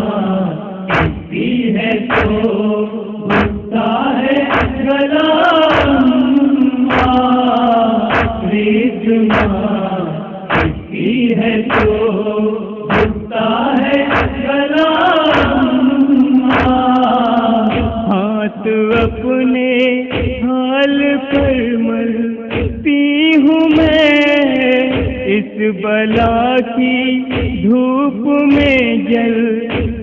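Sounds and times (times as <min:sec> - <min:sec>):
steady low thud: 0:00.9 - 0:01.5, 0:02.1 - 0:02.5, 0:03.3 - 0:03.8, 0:04.5 - 0:04.9, 0:05.7 - 0:06.0, 0:06.9 - 0:07.2, 0:08.1 - 0:08.5, 0:09.3 - 0:09.7, 0:10.5 - 0:11.0, 0:11.7 - 0:12.1, 0:12.9 - 0:13.3, 0:14.1 - 0:14.5, 0:15.3 - 0:15.7, 0:17.7 - 0:18.1, 0:18.9 - 0:19.3, 0:20.1 - 0:20.5, 0:22.5 - 0:22.9, 0:24.9 - 0:25.3, 0:27.3 - 0:27.7, 0:29.7 - 0:30.0.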